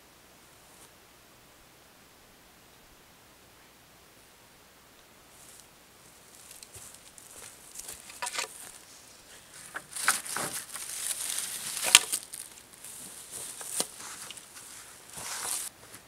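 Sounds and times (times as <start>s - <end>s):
footsteps on dry ground: 5.3s - 16.0s
wooden branches rustling and clacking: 5.5s - 16.0s.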